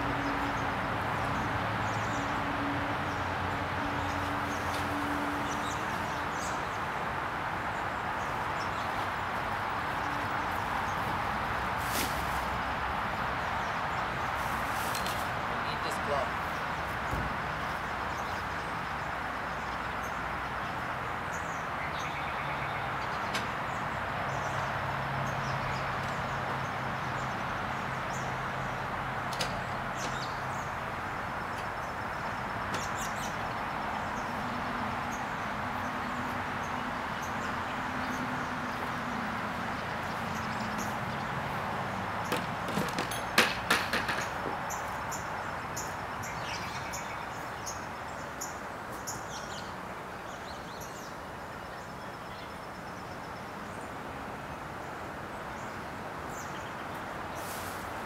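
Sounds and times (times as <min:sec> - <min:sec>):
outdoor background hiss: 0:00.0 - 0:58.0
sharp knocks and clatters: 0:42.2 - 0:44.7.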